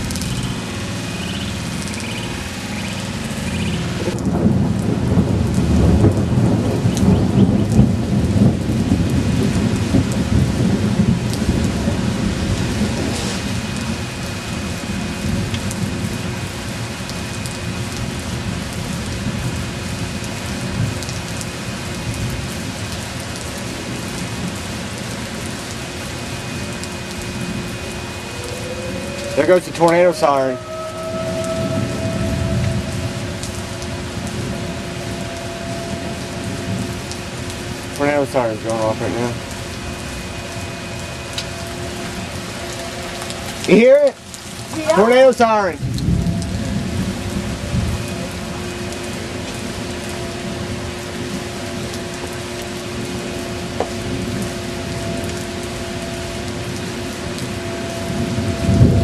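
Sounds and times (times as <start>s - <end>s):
thunder rolling: 0.0s - 17.0s, 23.6s - 43.7s, 45.8s - 51.9s, 56.6s - 59.0s
steady rain: 0.0s - 59.0s.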